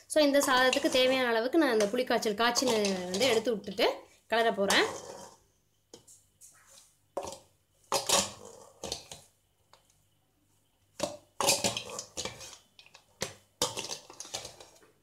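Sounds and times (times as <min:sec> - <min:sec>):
metal spoon scraping steel bowl: 0:00.3 - 0:03.6, 0:04.6 - 0:05.4, 0:11.4 - 0:12.6.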